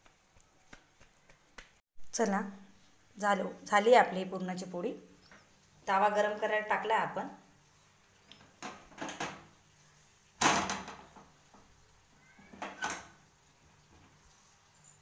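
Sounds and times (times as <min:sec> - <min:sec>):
knocks and clatters at griddle: 0:08.4 - 0:09.6, 0:10.4 - 0:11.8.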